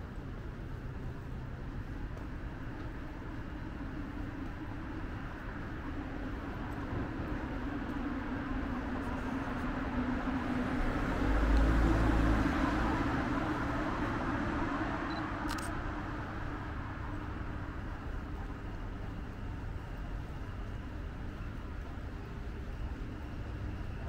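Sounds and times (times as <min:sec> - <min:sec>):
vehicle passing by: 0:10.5 - 0:14.6.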